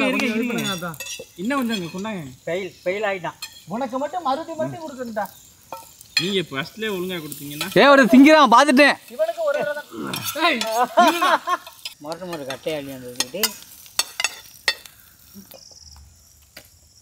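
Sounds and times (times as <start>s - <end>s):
man calling out: 0.0s - 0.8s
metal spatula scraping pan: 0.5s - 2.0s, 9.4s - 14.9s
omelette frying in a pan: 3.0s - 15.6s.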